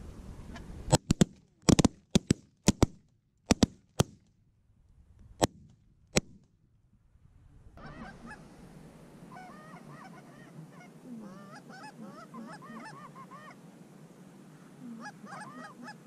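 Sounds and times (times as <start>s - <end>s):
shotgun fire: 0.9s - 4.2s, 5.4s - 6.4s.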